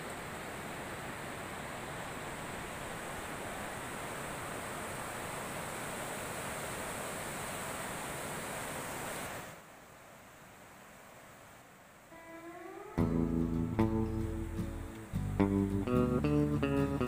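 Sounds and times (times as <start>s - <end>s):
river water rushing through sluice: 0.0s - 12.8s.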